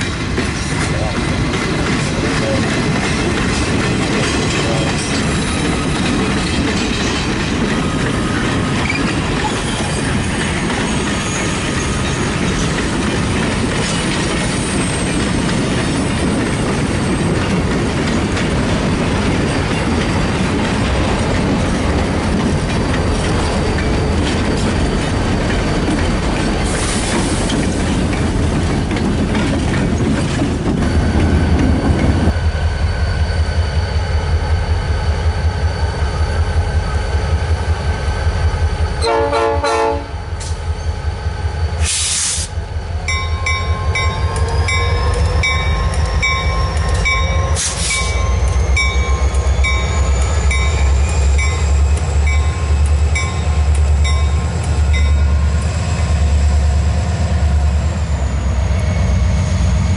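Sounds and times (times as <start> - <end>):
locomotive engine rumbling: 0.0 - 59.9
train horn blast: 39.0 - 40.2
locomotive bell ringing: 42.7 - 59.9.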